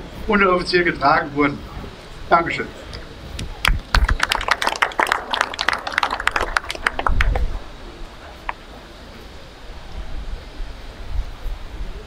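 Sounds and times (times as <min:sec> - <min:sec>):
crowd applauding: 0:03.4 - 0:07.8.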